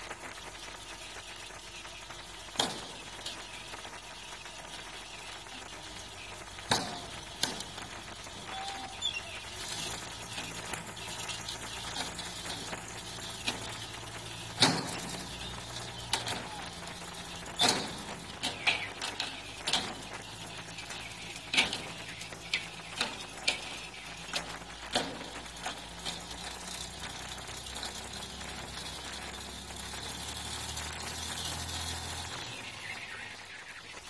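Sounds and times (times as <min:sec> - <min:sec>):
low engine hum: 0:00.0 - 0:34.0
timber cracks and creaks: 0:00.0 - 0:34.0.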